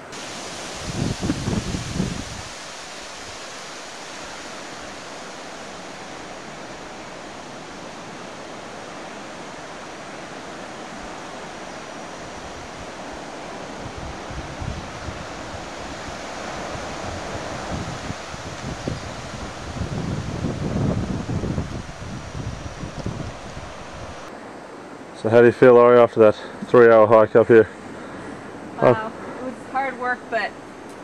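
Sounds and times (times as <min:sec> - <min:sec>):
wind rushing: 0:00.0 - 0:24.3
wind buffeting microphone: 0:00.0 - 0:24.4
distant ocean surf breaking: 0:00.0 - 0:31.0.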